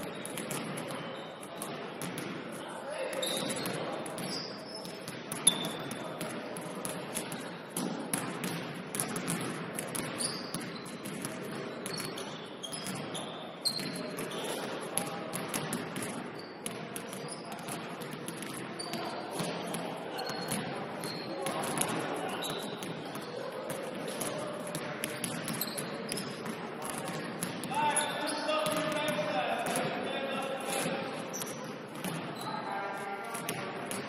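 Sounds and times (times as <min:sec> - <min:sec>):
sneakers squeaking on court: 0:03.1 - 0:06.0, 0:10.0 - 0:14.6, 0:16.4 - 0:23.4, 0:25.0 - 0:30.0, 0:30.7 - 0:32.6.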